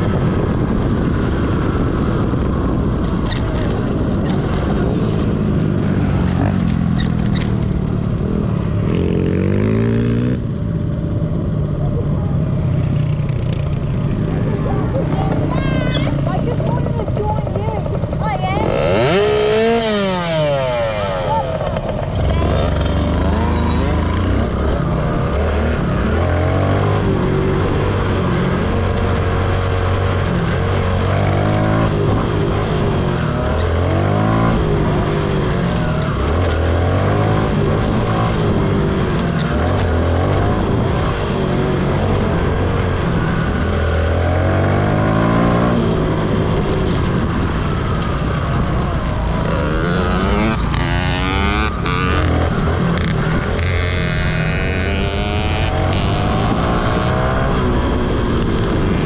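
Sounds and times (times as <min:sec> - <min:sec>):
dirt bike engine revving: 0:08.8 - 0:10.4, 0:15.2 - 0:47.3, 0:49.2 - 0:59.0.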